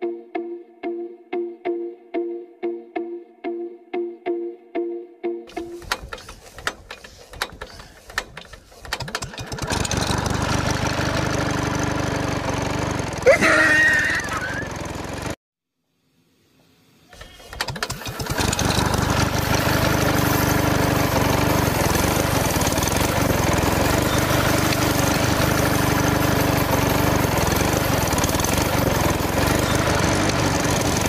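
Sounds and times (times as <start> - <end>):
small water pump motor running: 5.5 - 15.4, 17.2 - 31.0.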